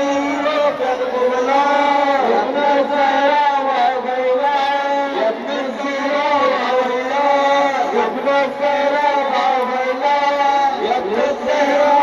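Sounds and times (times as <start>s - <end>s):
person chanting a mourning lament: 0.0s - 12.0s.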